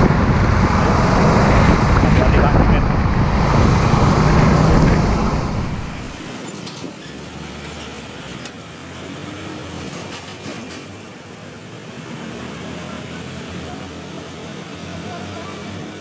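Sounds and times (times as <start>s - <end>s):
vehicle passing with deep rumble: 0.0s - 6.4s
steady traffic noise: 0.0s - 16.0s.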